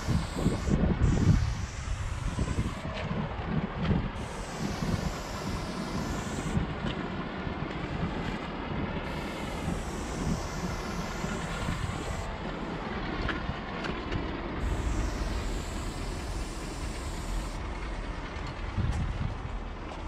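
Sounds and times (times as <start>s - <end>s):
spray paint can hissing: 0.0s - 3.0s, 4.1s - 6.6s, 9.0s - 12.8s, 14.6s - 17.6s
steady low rumble: 0.0s - 20.0s.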